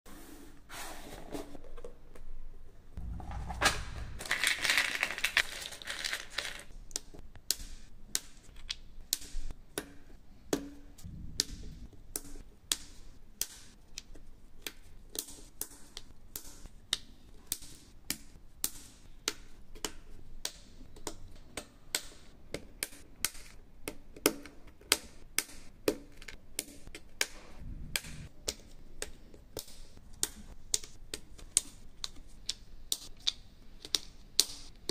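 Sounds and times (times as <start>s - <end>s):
rustling scrape: 0.1s - 1.6s
wooden puzzle pieces clicking: 4.3s - 9.4s.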